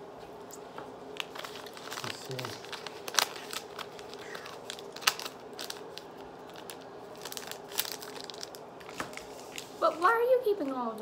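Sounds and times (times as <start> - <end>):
sweet wrappers crinkling: 1.1 - 11.0.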